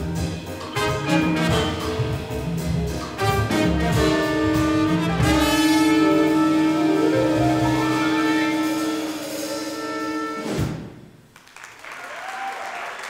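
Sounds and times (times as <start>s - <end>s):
jazz band playing: 0.0s - 11.3s
audience applause: 11.3s - 13.0s.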